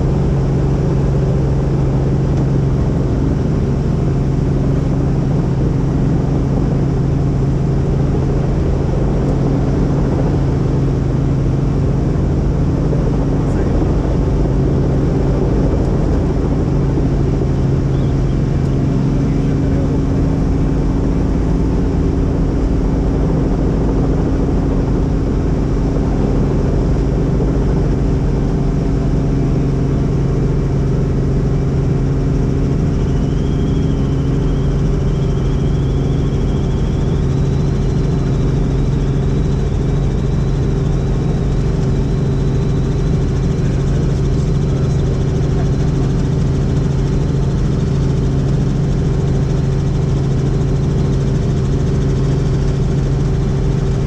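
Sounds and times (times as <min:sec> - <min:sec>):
helicopter engine and rotor: 0:00.0 - 0:54.0
faint high whine: 0:26.4 - 0:54.0.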